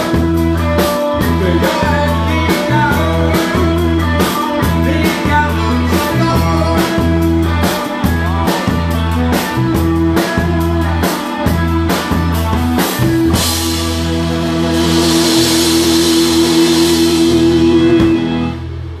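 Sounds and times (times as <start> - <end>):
rock and roll band playing: 0.0 - 19.0
hard drum strokes: 12.0 - 19.0
cymbal wash: 13.7 - 19.0.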